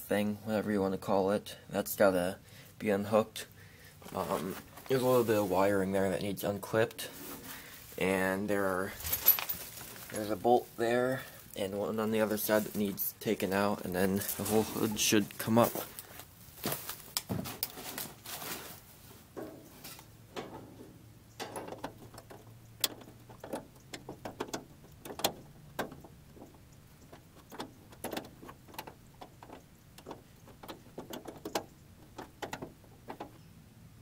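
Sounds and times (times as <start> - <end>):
shuffling movement: 4.0 - 6.1, 6.9 - 21.0
light clicks and metallic knocks: 19.4 - 33.6.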